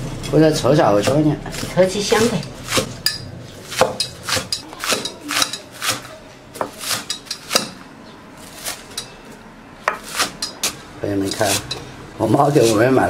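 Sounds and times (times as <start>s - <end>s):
cleaver chopping on wooden board: 1.0s - 3.0s, 3.7s - 7.8s, 9.8s - 11.7s.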